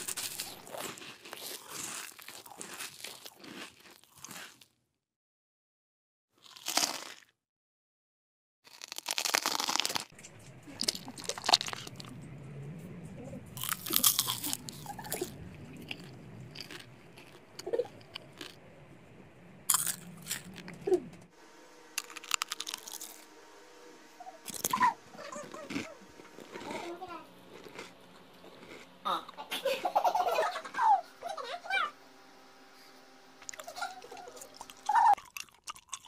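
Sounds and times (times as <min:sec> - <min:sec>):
faint steady hum: 0:00.0 - 0:01.0, 0:10.1 - 0:36.0
fruit being bitten and chewed: 0:00.0 - 0:04.8, 0:06.4 - 0:07.4, 0:08.7 - 0:12.2, 0:13.2 - 0:18.6, 0:19.7 - 0:21.0, 0:22.0 - 0:23.3, 0:24.2 - 0:29.4, 0:33.4 - 0:36.0.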